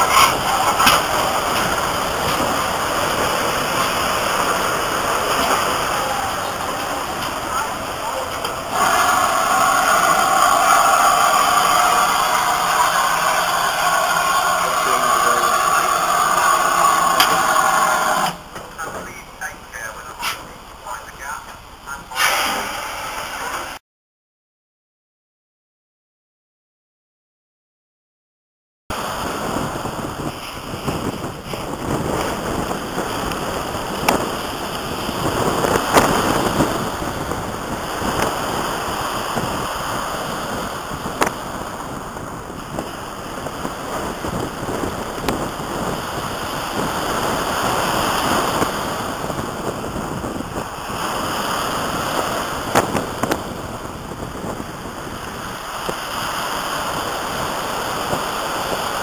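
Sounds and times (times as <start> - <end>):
waves breaking on shingle beach: 0.0 - 21.4, 28.9 - 59.0
wind rumbling on microphone: 0.0 - 23.8, 28.9 - 59.0.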